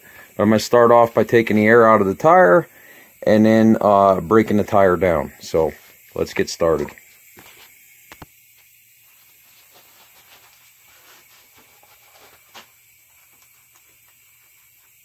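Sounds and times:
air hissing from tire valve: 0.0s - 0.4s, 2.5s - 3.2s.

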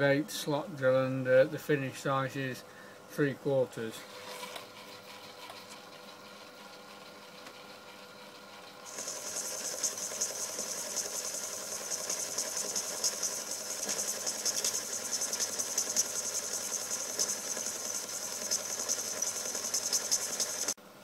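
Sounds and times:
lathe humming: 4.8s - 20.8s
boring tool hissing in metal: 8.9s - 20.8s.

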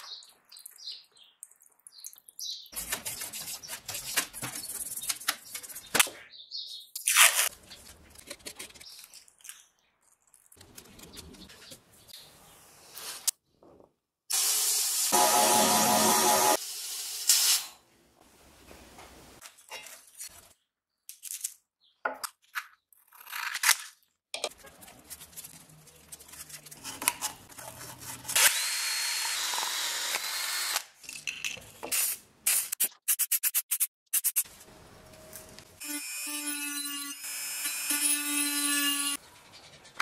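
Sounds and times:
cordless drill spinning sandpaper: 28.4s - 30.8s.

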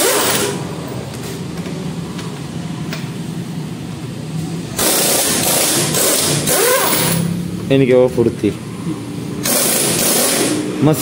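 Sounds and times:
impact wrench bursts: 0.0s - 0.6s, 4.8s - 7.3s, 9.4s - 11.0s.

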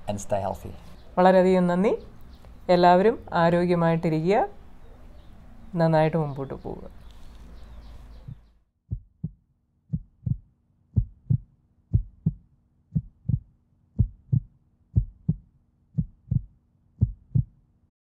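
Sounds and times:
heartbeat thumps: 8.2s - 17.6s.

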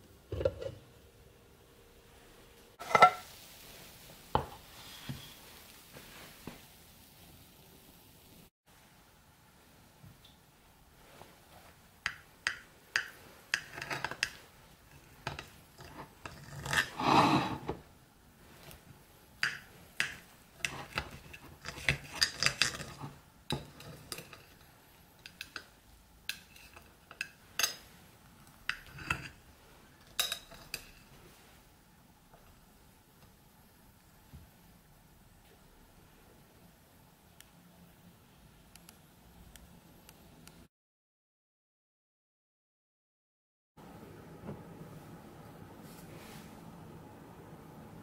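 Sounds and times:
knife scraping and tapping plate: 0.3s - 0.8s, 2.8s - 3.3s, 12.0s - 17.8s, 19.4s - 25.7s, 26.3s - 27.9s, 28.7s - 29.4s.

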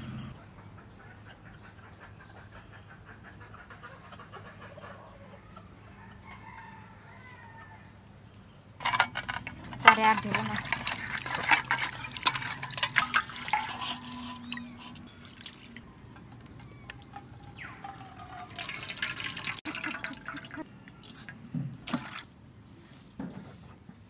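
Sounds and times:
water splashing in steel bowl: 8.9s - 20.7s, 21.8s - 22.3s
water dripping and trickling: 10.0s - 22.4s.

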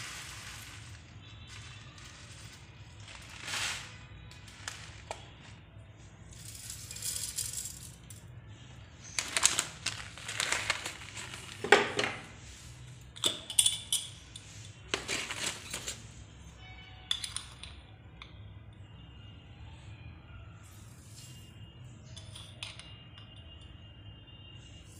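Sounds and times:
seeds rattling in metal jar: 0.0s - 5.6s, 6.3s - 8.2s, 9.0s - 11.8s.

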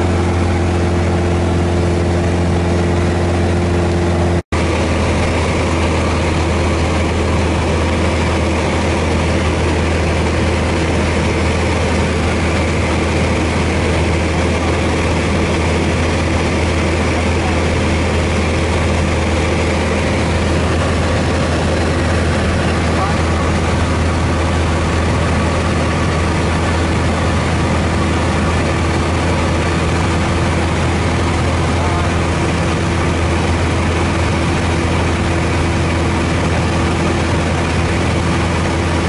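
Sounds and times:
light airplane engine droning: 0.0s - 39.0s.

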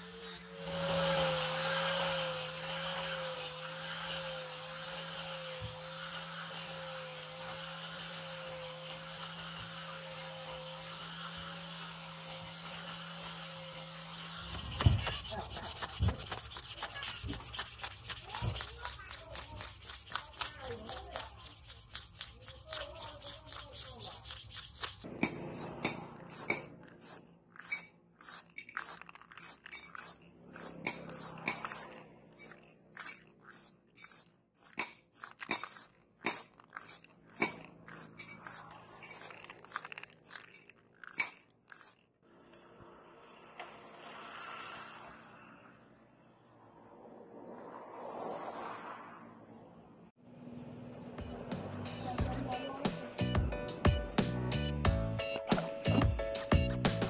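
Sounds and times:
angle grinder polishing: 0.0s - 42.0s
knife cutting grass stalks: 14.4s - 39.6s
hand rubbing wooden handle: 14.4s - 42.0s.

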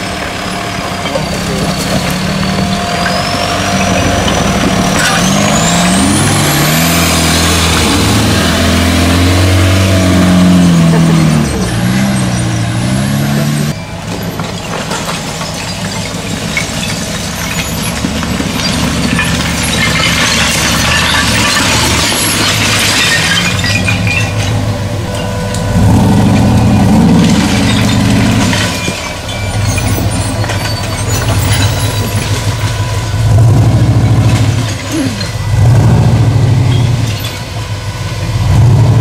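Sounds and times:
engine revving under load: 1.4s - 13.8s, 25.6s - 28.8s, 33.2s - 37.2s, 38.3s - 39.0s.

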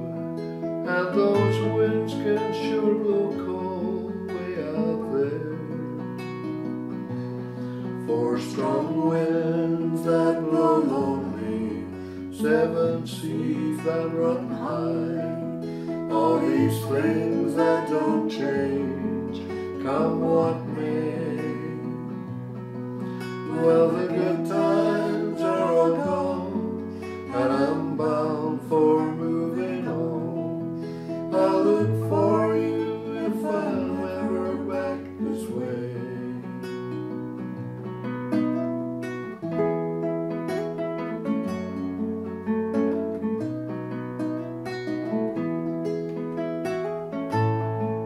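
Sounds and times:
classical guitar chords: 0.0s - 48.0s
voices holding sung notes: 8.1s - 22.1s, 23.4s - 36.5s.

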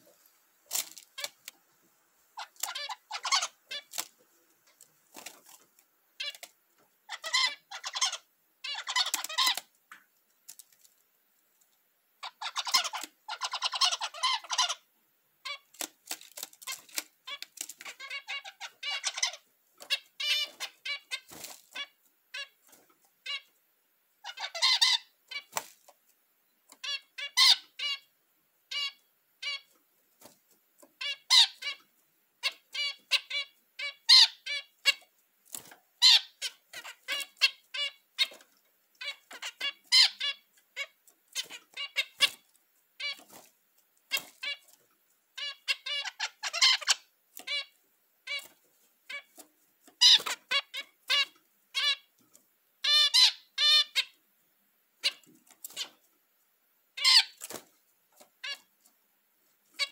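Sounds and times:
finches beeping calls: 2.4s - 4.1s, 6.2s - 6.5s, 7.1s - 9.7s, 12.2s - 23.6s, 24.2s - 25.7s, 26.7s - 28.1s, 28.7s - 29.8s, 31.0s - 43.5s, 44.1s - 44.8s, 45.4s - 52.2s, 52.8s - 54.2s, 55.0s - 56.0s, 56.9s - 57.6s, 58.4s - 58.7s.

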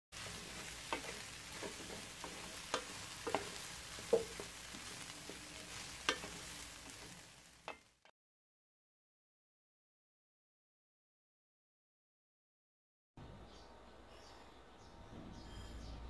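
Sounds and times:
vegetables sizzling in a pan: 0.1s - 8.1s
utensil clicking and scraping pan: 0.2s - 7.9s.

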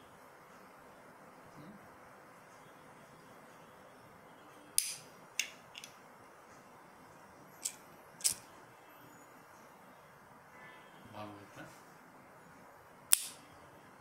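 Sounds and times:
flip-top lighter metallic clicks: 13.1s - 13.4s.

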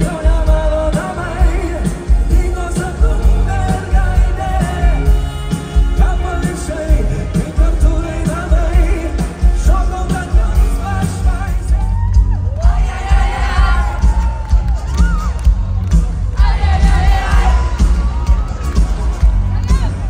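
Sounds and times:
man singing: 0.0s - 14.1s
heavy steady drum beat: 0.0s - 20.0s.

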